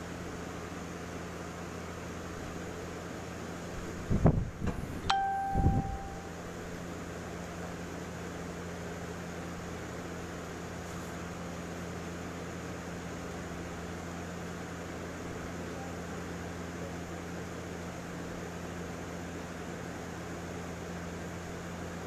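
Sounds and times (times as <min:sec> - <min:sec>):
low mechanical hum: 0:00.0 - 0:22.0
metallic ping: 0:05.0 - 0:06.3.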